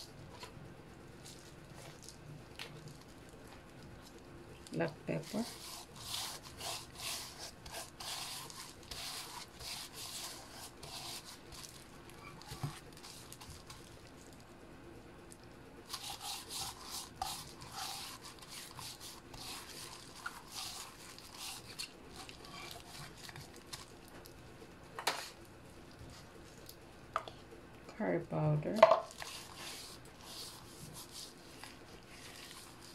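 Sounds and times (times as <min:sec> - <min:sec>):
gloved hand rubbing fish: 0:05.1 - 0:13.9, 0:15.9 - 0:23.9, 0:29.1 - 0:32.9.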